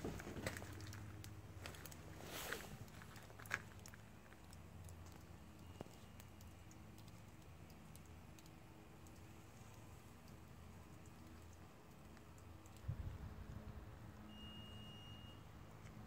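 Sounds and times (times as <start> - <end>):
low steady hum: 0.0 - 16.0
faint ticks and clicks: 2.8 - 14.3.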